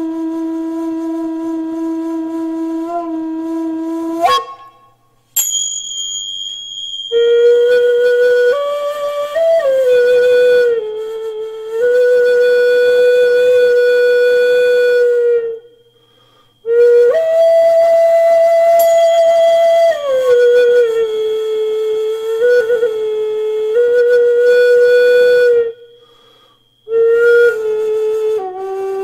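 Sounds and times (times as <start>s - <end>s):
flute playing long held notes: 0.0s - 5.0s, 7.0s - 29.0s
tingsha cymbals ringing: 4.5s - 9.2s, 14.6s - 16.7s, 18.4s - 21.6s, 25.7s - 28.0s.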